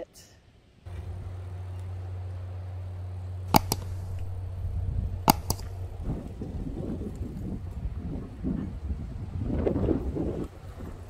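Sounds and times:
low mechanical hum: 0:00.4 - 0:11.0
sharp cracks: 0:03.4 - 0:07.3.

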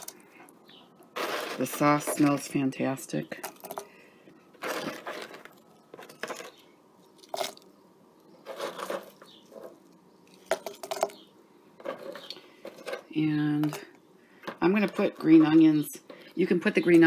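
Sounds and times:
plastic container handled: 0:04.5 - 0:06.6, 0:08.4 - 0:11.2.

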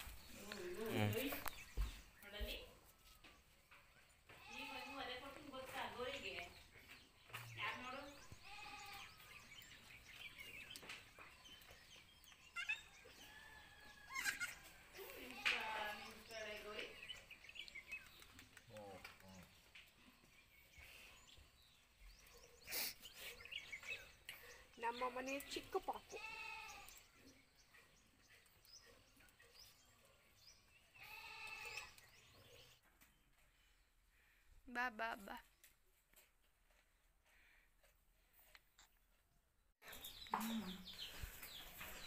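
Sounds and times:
young goat bleating: 0:04.4 - 0:05.2, 0:08.4 - 0:09.2, 0:14.1 - 0:16.4, 0:26.1 - 0:27.0, 0:31.0 - 0:32.0.

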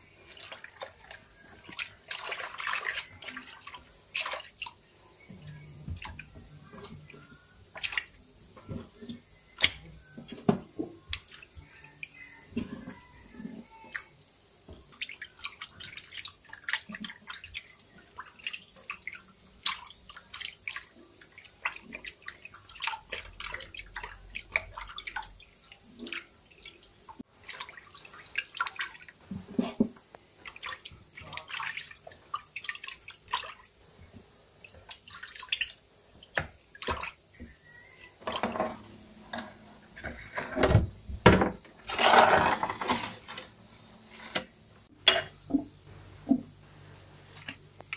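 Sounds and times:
water splashing in plastic basin: 0:00.3 - 0:04.8, 0:07.7 - 0:08.2, 0:14.8 - 0:26.8, 0:27.4 - 0:33.7, 0:34.6 - 0:37.3.

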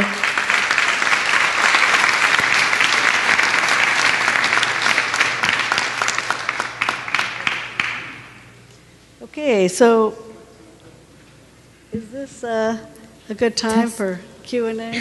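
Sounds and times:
audience applauding: 0:00.0 - 0:08.5.

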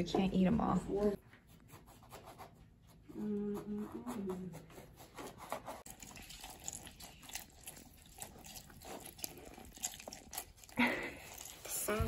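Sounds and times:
wet squishing of fruit pulp: 0:05.8 - 0:12.0
juice dripping: 0:05.9 - 0:12.0.

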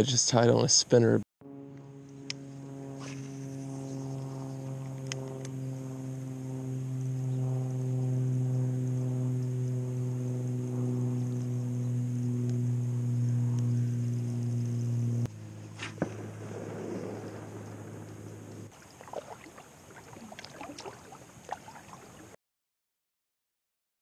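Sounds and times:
low droning music note: 0:01.4 - 0:18.7.

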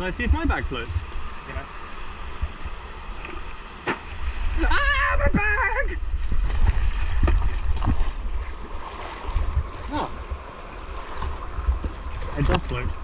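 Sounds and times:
low rumble buffeting microphone: 0:00.0 - 0:13.0
stream water rushing: 0:00.0 - 0:13.0
short water splashes: 0:06.1 - 0:13.0.

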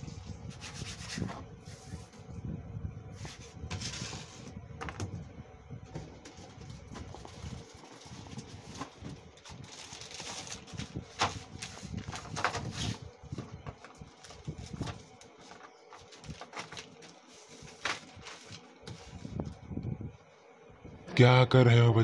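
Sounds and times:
plastic wrap rustling: 0:05.9 - 0:19.6.

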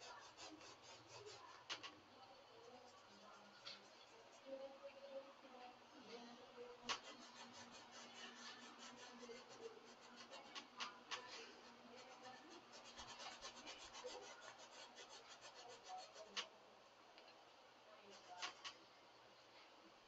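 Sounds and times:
paintbrush scratching on canvas: 0:00.0 - 0:02.0, 0:02.6 - 0:04.6, 0:06.8 - 0:16.5, 0:18.1 - 0:18.8.

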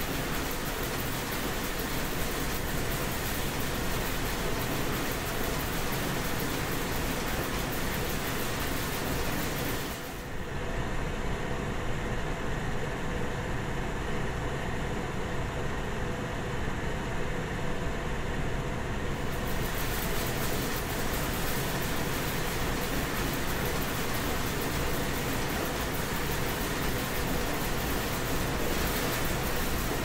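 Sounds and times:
industrial machine hum: 0:18.8 - 0:30.0.

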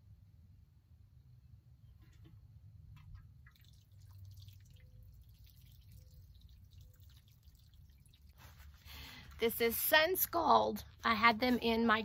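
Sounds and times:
water dripping onto soil: 0:03.1 - 0:08.8.

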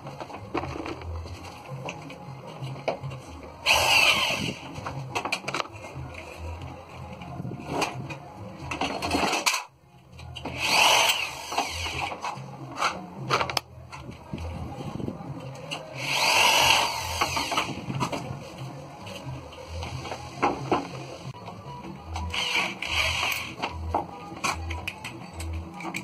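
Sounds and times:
electric drill driving screws: 0:03.6 - 0:04.6, 0:10.5 - 0:12.1, 0:16.0 - 0:17.8, 0:22.3 - 0:23.6.

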